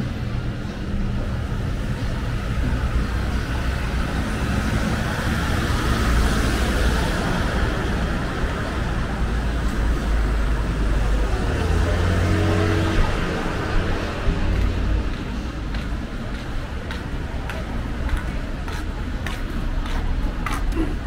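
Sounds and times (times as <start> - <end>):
traffic rumble: 0.0 - 21.0.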